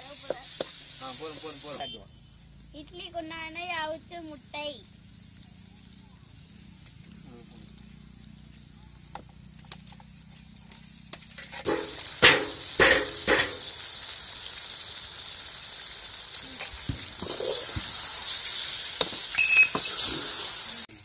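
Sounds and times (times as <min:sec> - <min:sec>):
food sizzling in hot oil: 0:00.0 - 0:21.0
metal clanks against pan: 0:11.3 - 0:13.7.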